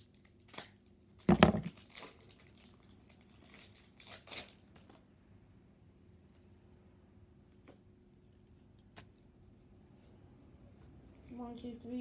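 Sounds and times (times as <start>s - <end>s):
foil wrapper crinkling: 0.0s - 5.0s.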